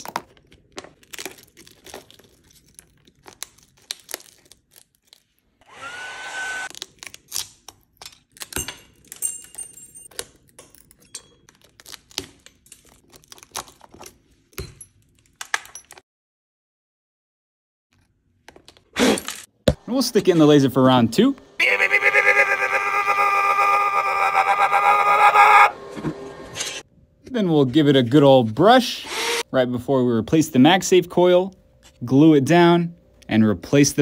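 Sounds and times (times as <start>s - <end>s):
glass cracking and chipping: 0.0s - 5.4s, 6.7s - 16.0s.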